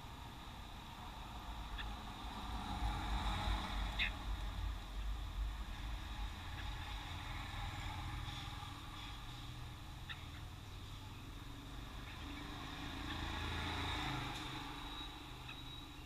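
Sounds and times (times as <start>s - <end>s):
street traffic rumbling: 0.0s - 16.0s
vehicle passing: 0.7s - 16.0s
bird chirps: 11.9s - 16.0s.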